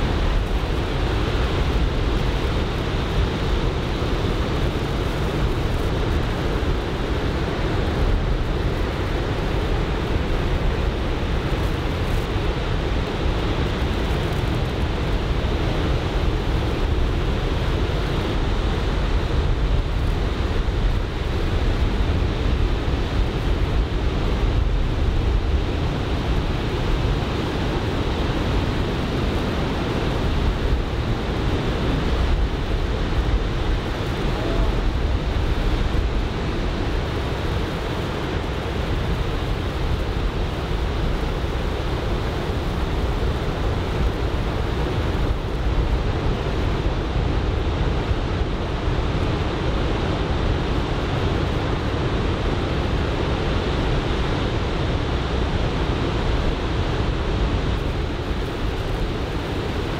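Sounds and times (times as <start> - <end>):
wind buffeting microphone: 0.0 - 59.9
breaking surf: 24.6 - 47.9.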